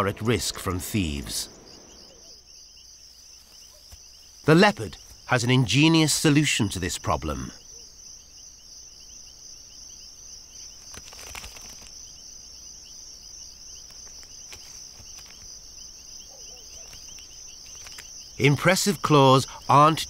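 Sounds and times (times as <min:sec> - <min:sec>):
fast pulsing insect chirp: 0:00.0 - 0:20.0
insect chorus chirring: 0:00.0 - 0:20.0
rustle: 0:09.8 - 0:18.4.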